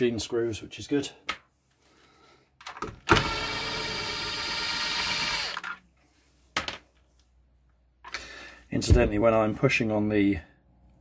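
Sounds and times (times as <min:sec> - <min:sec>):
cordless drill running: 0:03.1 - 0:05.7.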